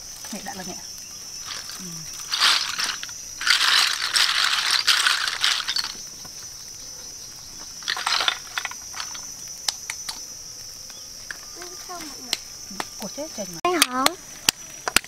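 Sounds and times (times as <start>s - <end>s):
shells rattling in a basket: 1.4s - 6.0s, 7.8s - 9.3s.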